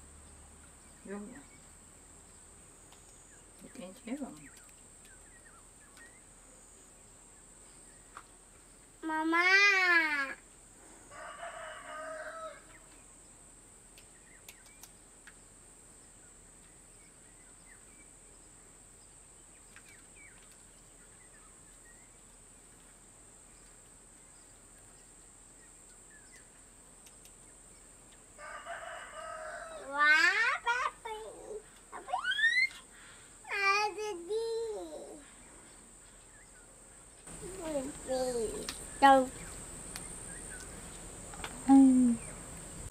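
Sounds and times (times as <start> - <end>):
faint clicks: 2.9 - 5.2, 13.9 - 15.4, 25.8 - 27.5
rooster crowing: 11.1 - 12.8, 28.4 - 30.1.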